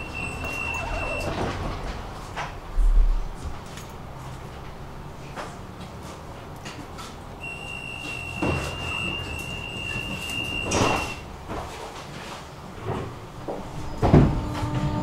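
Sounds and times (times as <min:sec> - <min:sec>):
tram door warning beeps: 0:00.0 - 0:02.0, 0:07.4 - 0:11.3
tram doors thudding: 0:00.0 - 0:05.6, 0:07.5 - 0:11.8, 0:12.7 - 0:15.0
tram rumble: 0:00.0 - 0:15.0.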